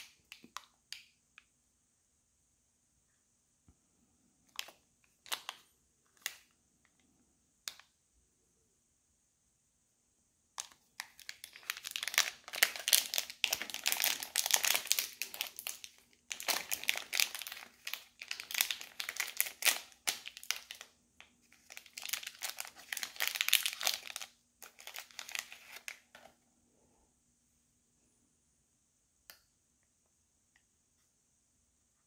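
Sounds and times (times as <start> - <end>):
plastic wrapper crackling: 4.5 - 6.5, 10.6 - 20.9, 21.5 - 26.2.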